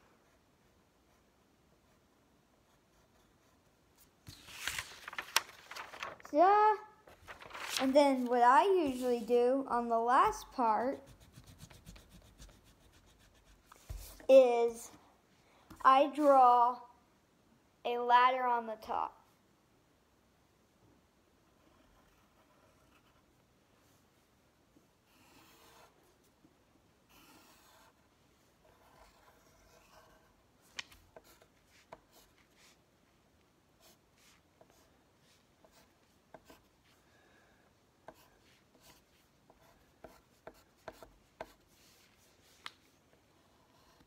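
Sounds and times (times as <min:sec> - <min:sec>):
pencil scratching on paper: 0:01.1 - 0:03.7, 0:10.5 - 0:14.3, 0:21.4 - 0:23.3, 0:25.0 - 0:26.2, 0:27.1 - 0:30.4, 0:31.1 - 0:32.8, 0:33.8 - 0:37.0, 0:38.0 - 0:42.6, 0:43.3 - 0:44.0.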